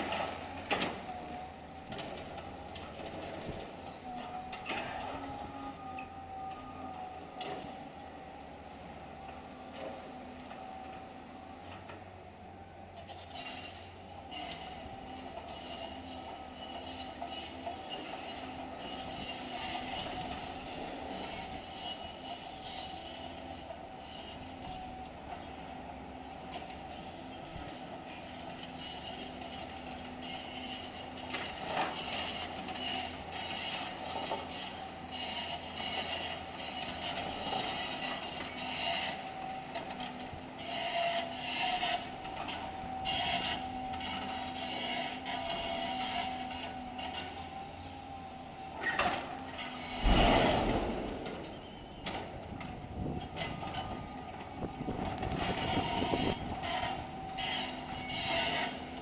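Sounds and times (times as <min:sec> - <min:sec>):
excavator engine whining: 0:00.0 - 0:59.0
steel scraping concrete rubble: 0:13.0 - 0:59.0
heavy crunching thump: 0:50.0 - 0:51.5.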